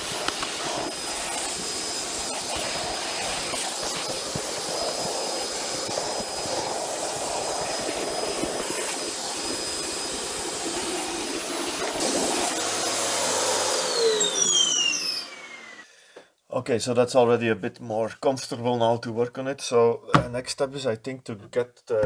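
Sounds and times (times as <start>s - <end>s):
vacuum cleaner running: 0.0s - 15.9s.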